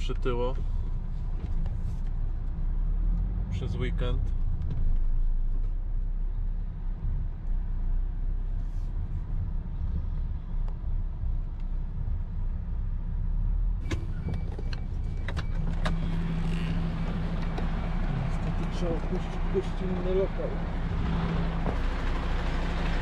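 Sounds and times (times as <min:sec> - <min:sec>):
diesel truck engine idling: 0:13.8 - 0:23.0.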